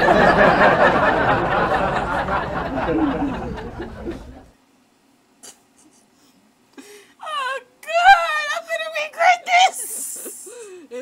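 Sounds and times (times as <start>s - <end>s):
loud breathy laughter: 0.0s - 4.5s.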